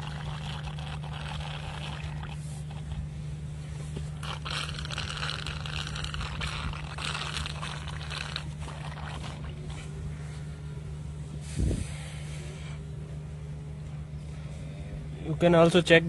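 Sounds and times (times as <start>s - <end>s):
gas and fluid hissing in spurts: 0.0s - 3.0s, 4.0s - 9.8s
steady low hum: 0.0s - 16.0s.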